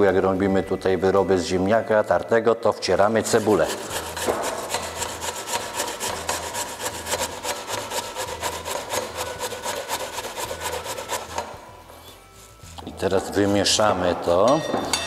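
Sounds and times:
onion rasping on metal grater: 3.2s - 11.5s.

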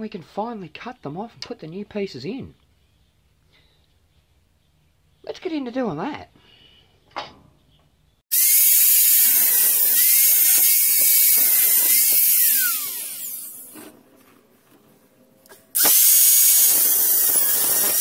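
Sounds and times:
angle grinder cutting steel: 8.3s - 13.8s, 15.8s - 18.0s.

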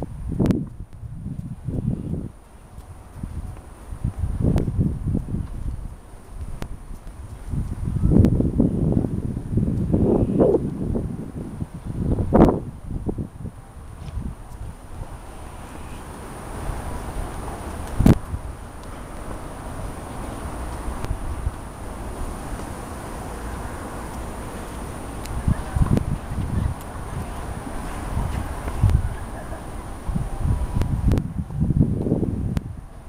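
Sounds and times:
wind buffeting microphone: 0.0s - 33.0s
faint high whine: 7.7s - 33.0s.

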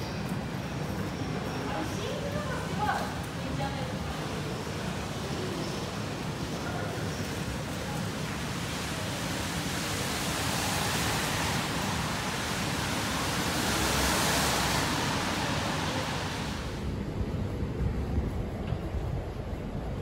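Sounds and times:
rushing street noise: 0.0s - 20.0s.

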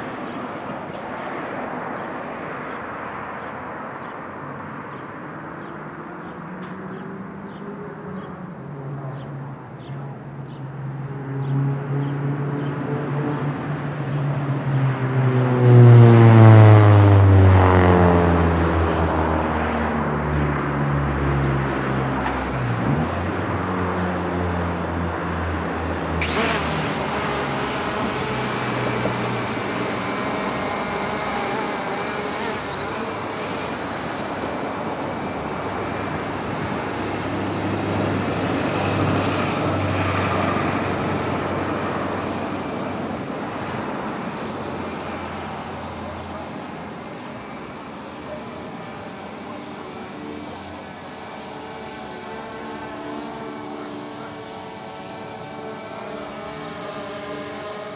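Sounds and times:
traffic noise: 0.0s - 57.9s
car passing by: 11.1s - 26.4s
drone motors whining: 21.6s - 57.9s.

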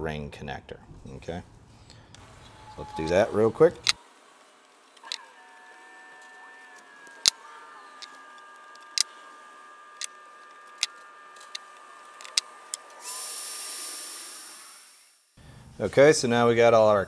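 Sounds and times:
loud steady hiss: 12.0s - 17.0s.

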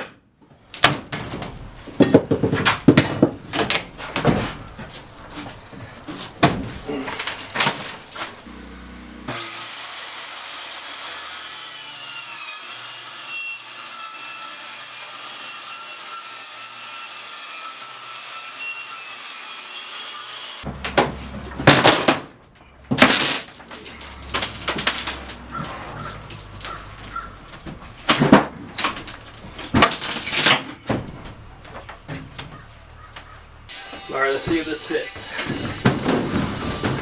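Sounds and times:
floor boards knocking and thumping: 0.8s - 8.4s, 20.7s - 32.6s, 34.5s - 37.0s
circular saw cutting: 8.4s - 20.7s.

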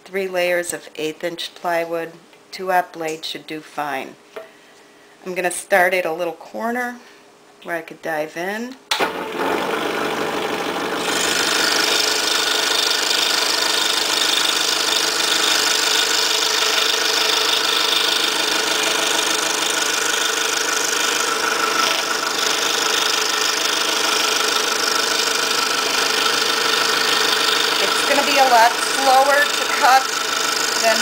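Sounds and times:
saw blade cutting wood: 11.0s - 31.0s
scroll saw drone: 26.0s - 31.0s.

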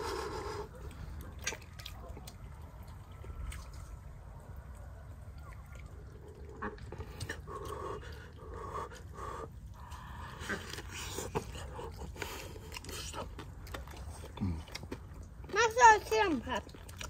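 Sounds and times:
wet mouth clicks and smacks: 1.2s - 3.9s, 9.8s - 15.5s.

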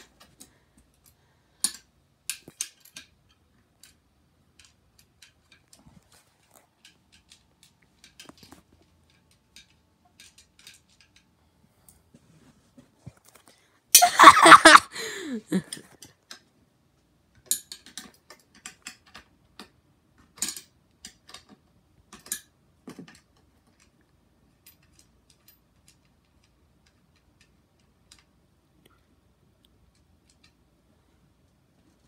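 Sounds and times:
small metal parts clicking: 0.0s - 11.4s, 17.3s - 28.9s, 29.6s - 30.8s.

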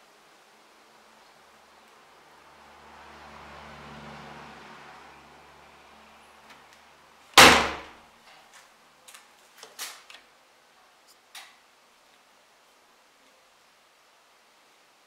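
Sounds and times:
washing machine door slamming: 7.4s - 8.0s.

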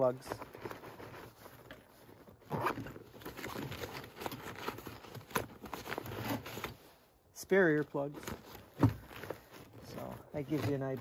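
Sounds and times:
fabric bag rustling: 8.1s - 11.0s.

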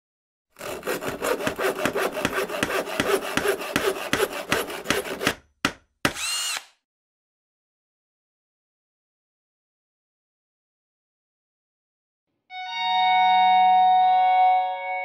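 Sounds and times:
hand saw cutting wood: 0.6s - 6.7s.

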